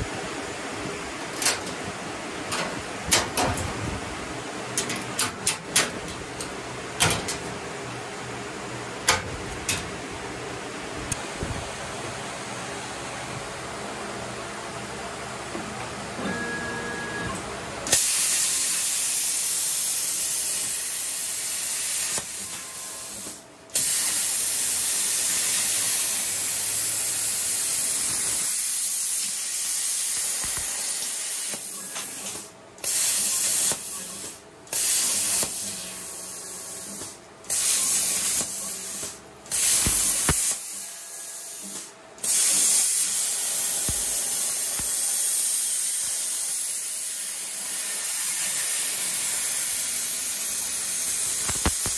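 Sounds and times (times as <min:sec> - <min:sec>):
plasma cutter arc hissing: 0:17.9 - 0:51.9.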